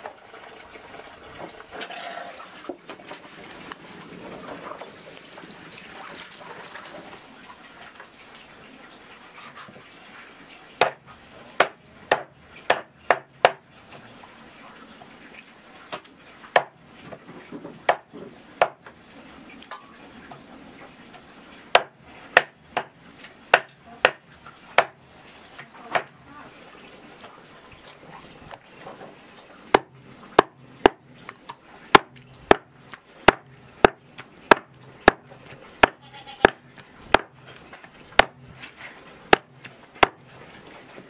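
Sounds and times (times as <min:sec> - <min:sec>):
knife chopping on wooden block: 0:33.3 - 0:35.2.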